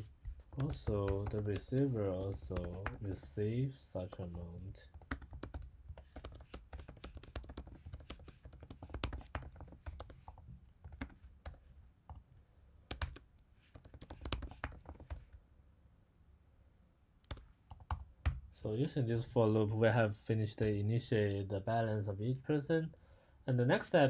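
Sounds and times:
typing on computer keyboard: 0.6 - 3.2, 4.9 - 11.6, 12.9 - 15.3.

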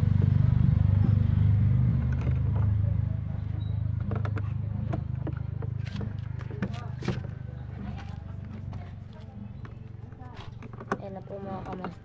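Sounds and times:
vehicle engine droning: 0.0 - 12.0.

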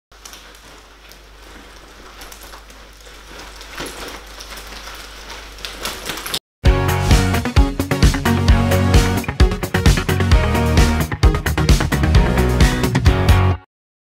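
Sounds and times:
leather bag rustling and clicking: 0.1 - 6.4
music with a beat: 6.7 - 13.6.

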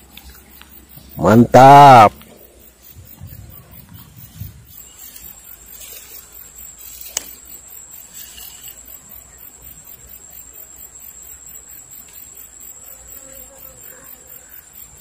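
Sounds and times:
insects chirring: 0.0 - 15.0
sharp click: 7.1 - 7.4.

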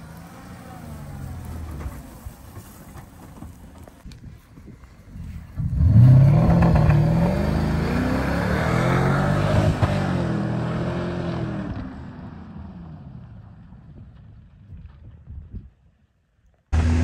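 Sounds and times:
car engine revving: 5.6 - 11.9, 16.8 - 17.0.

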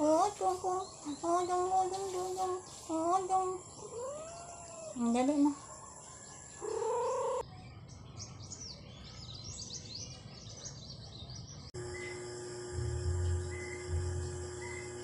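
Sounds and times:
small birds chirping: 0.0 - 15.0
steady held tone: 11.8 - 15.0.

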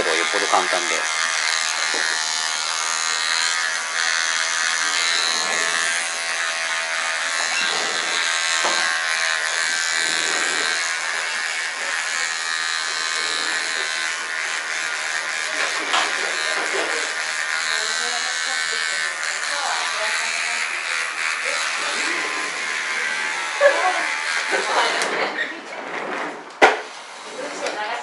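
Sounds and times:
electric hair clippers buzzing: 0.0 - 25.8, 26.5 - 28.0.

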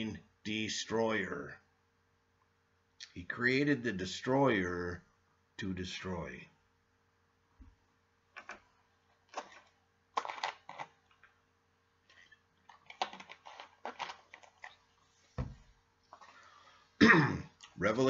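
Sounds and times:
plastic bottle clicks and crinkles: 9.2 - 11.3, 12.1 - 16.4
deep thump: 15.4 - 15.7.

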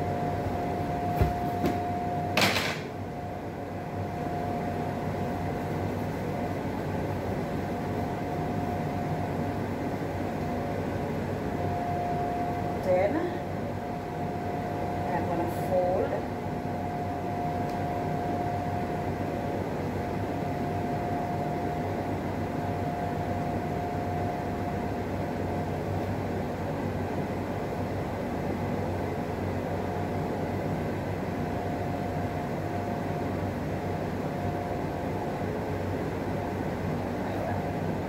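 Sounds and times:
high mechanical whine: 0.0 - 28.0
low mechanical hum: 0.0 - 38.0.

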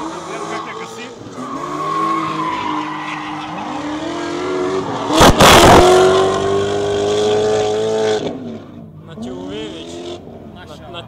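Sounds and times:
car engines at high revs: 0.0 - 11.0
tyre squeal: 0.4 - 4.0.

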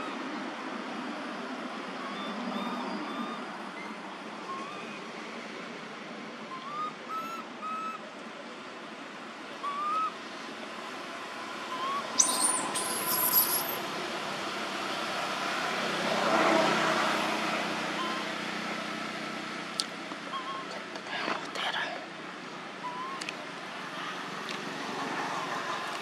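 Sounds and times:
outdoor background noise: 0.0 - 26.0
upward-gliding whistled calls: 2.0 - 5.1, 6.5 - 8.0, 9.6 - 10.2, 11.6 - 13.8, 18.0 - 18.3, 22.8 - 23.3.

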